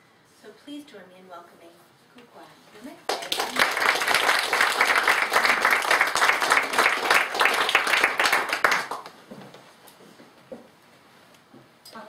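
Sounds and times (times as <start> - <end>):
audience applause: 3.1 - 9.2.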